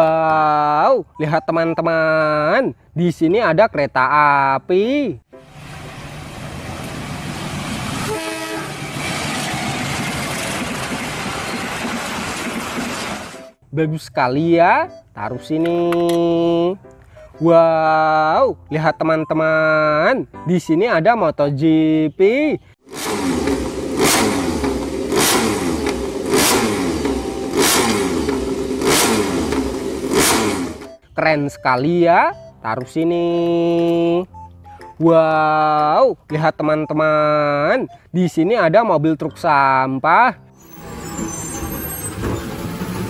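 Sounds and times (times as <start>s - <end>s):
train rumbling past: 5.4s - 13.6s
train horn blast: 8.0s - 9.0s
motorcycle engine revving: 22.8s - 31.0s.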